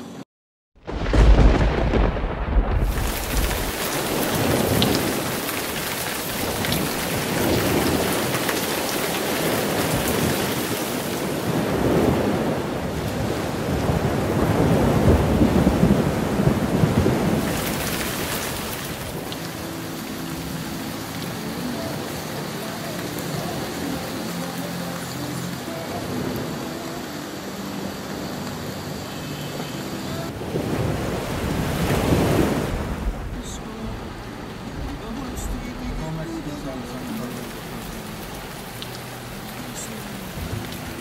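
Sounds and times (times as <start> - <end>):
low rolling thunder: 0.8 - 19.8, 30.3 - 38.6
heavy rain on a car: 0.9 - 41.0.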